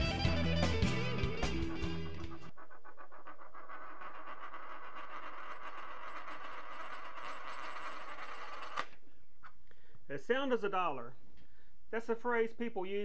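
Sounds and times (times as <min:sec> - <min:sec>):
coin rattling on wood: 0:02.2 - 0:09.6.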